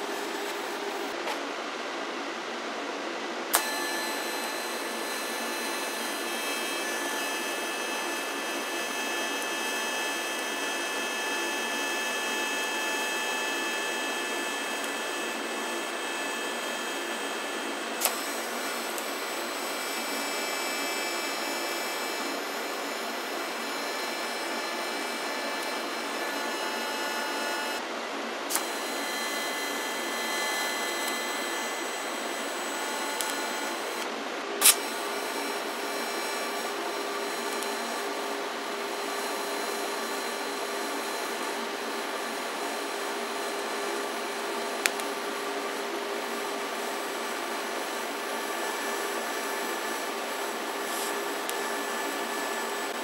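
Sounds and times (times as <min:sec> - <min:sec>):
welding arc hissing: 0:50.8 - 0:52.9.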